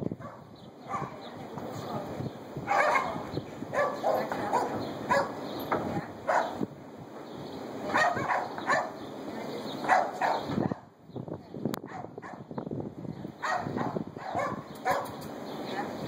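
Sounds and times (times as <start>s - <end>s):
dog barking: 0.2s - 1.2s, 2.7s - 5.4s, 6.2s - 6.6s, 7.9s - 9.0s, 9.8s - 10.9s, 11.8s - 12.5s, 13.4s - 15.2s.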